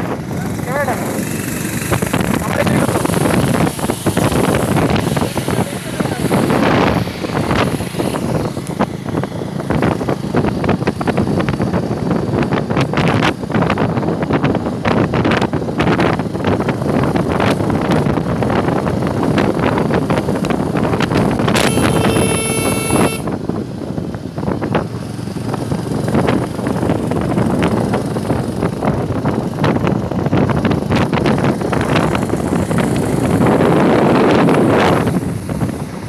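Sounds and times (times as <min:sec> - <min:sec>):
road and engine rumble: 0:00.0 - 0:36.0
wind buffeting microphone: 0:00.0 - 0:36.0
vehicle horn: 0:21.5 - 0:23.4.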